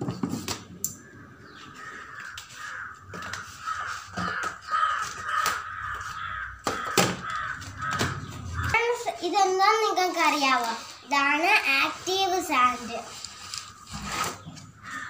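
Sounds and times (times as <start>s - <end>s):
crows cawing: 0.9s - 9.1s, 13.6s - 15.0s.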